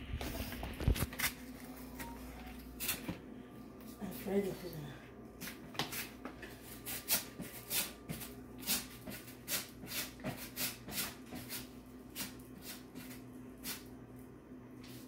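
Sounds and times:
potatoes grated on a grater: 6.9 - 13.9.

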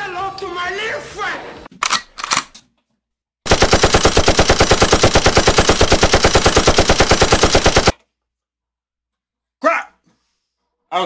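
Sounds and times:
machine gun automatic fire: 3.5 - 7.9.

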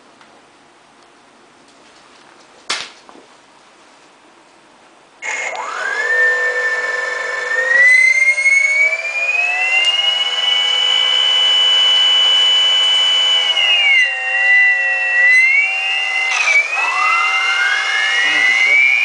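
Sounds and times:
electric thruster motors whining: 5.2 - 19.0.

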